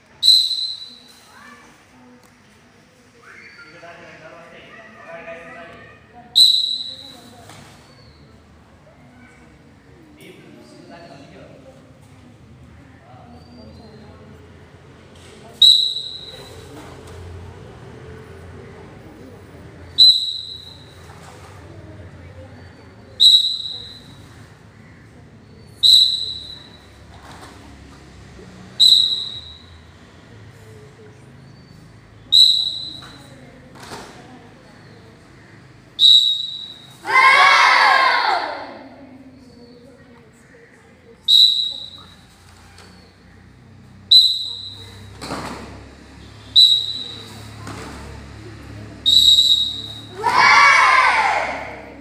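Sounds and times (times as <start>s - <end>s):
shrill whistle blasts in a hall: 0.2s - 1.6s, 3.2s - 4.2s, 6.3s - 8.4s, 15.5s - 16.8s, 19.9s - 21.2s, 22.5s - 24.5s, 25.5s - 27.1s, 28.7s - 29.9s, 31.5s - 33.4s, 35.9s - 38.6s, 41.2s - 43.3s, 44.0s - 45.2s, 46.1s - 47.6s, 48.9s - 51.8s
children shouting: 4.6s - 6.2s, 36.7s - 39.0s, 49.7s - 52.0s.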